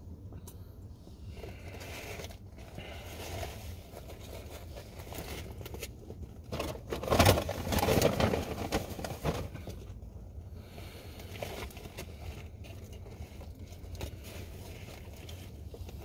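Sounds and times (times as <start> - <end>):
wrapper crackling rustle: 1.4 - 9.9.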